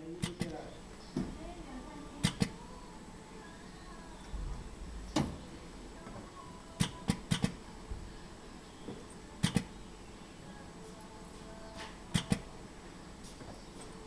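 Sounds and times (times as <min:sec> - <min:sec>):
steady low hum: 0:00.0 - 0:14.0
metal spring clips snapping: 0:12.1 - 0:12.4.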